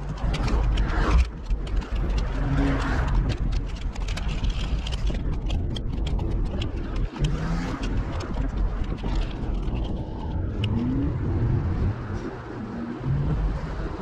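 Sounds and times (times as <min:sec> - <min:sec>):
quick irregular clicks: 0:00.0 - 0:11.2
low rumble of wind and rolling: 0:00.0 - 0:14.0.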